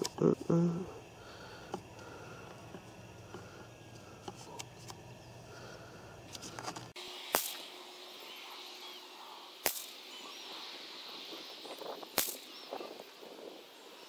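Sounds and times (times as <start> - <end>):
rifle shot with short echo: 7.3 - 7.7.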